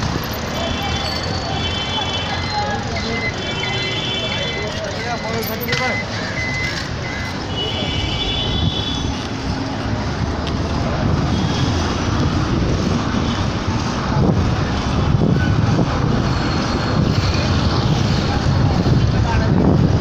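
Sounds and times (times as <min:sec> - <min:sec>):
street traffic: 0:00.0 - 0:20.0
wind rumbling on microphone: 0:11.9 - 0:20.0.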